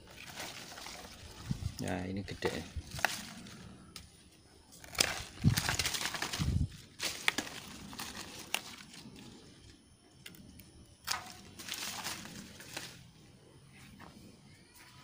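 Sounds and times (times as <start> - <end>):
leaves and branches rustling: 0.0 - 15.0
pruning shears snipping: 4.8 - 6.4, 11.0 - 13.0.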